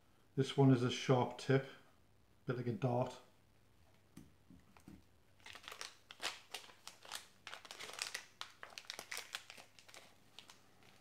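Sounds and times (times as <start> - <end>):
plastic packet crinkling: 5.4 - 11.0.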